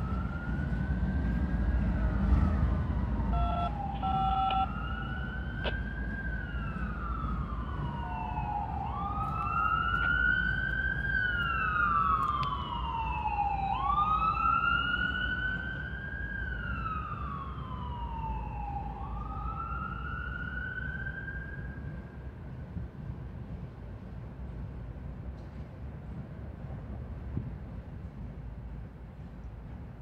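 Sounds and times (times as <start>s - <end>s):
emergency siren wailing: 0.0s - 22.2s.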